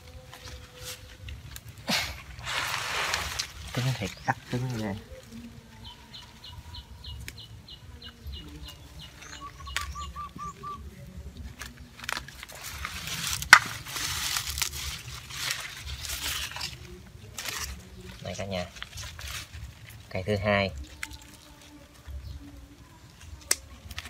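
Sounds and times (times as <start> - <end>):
leaves rustling: 0.0 - 24.0
small bird chirping: 5.8 - 11.0.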